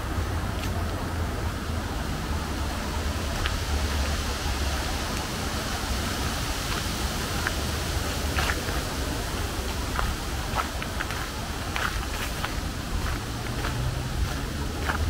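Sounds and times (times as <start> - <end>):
steady rushing noise: 0.0 - 15.0
footsteps on forest path: 4.8 - 15.0.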